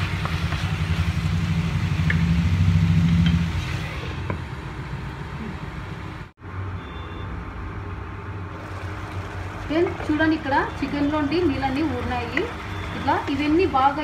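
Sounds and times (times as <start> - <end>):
cooktop electrical hum: 6.8 - 14.0.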